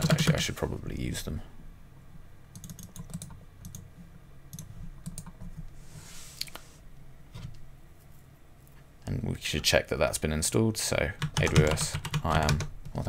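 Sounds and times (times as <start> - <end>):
low steady hum: 0.0 - 13.0
keyboard and mouse clicks: 2.6 - 3.8, 4.5 - 5.6, 11.2 - 13.0.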